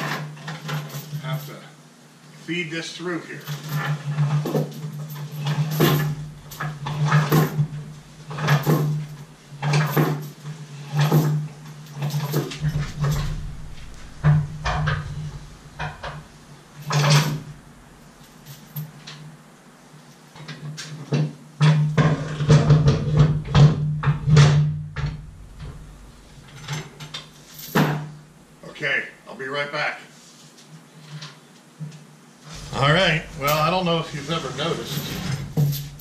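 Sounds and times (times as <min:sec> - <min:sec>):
anchor chain rattling on metal: 0:00.0 - 0:01.6, 0:03.4 - 0:19.0, 0:25.0 - 0:28.4, 0:32.5 - 0:36.0.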